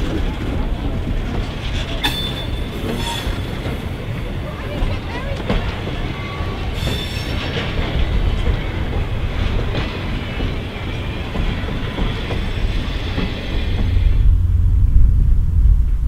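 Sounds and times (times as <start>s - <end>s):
train wheels clacking on rails: 0.0s - 14.3s
low rumble: 13.3s - 16.0s.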